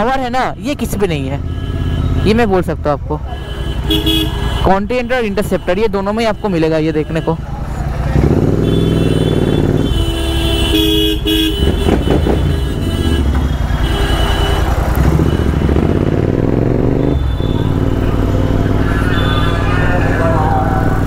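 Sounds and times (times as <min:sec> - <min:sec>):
vehicle horns honking: 0:01.2 - 0:02.6, 0:03.2 - 0:07.5, 0:08.4 - 0:16.1, 0:16.7 - 0:21.0
motorcycle engine running: 0:07.4 - 0:21.0.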